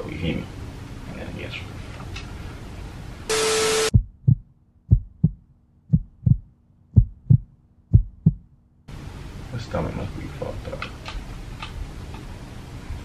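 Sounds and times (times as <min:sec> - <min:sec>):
static burst: 0:03.3 - 0:04.0
steady beep tone: 0:03.3 - 0:04.0
heartbeat thumps: 0:03.9 - 0:08.6.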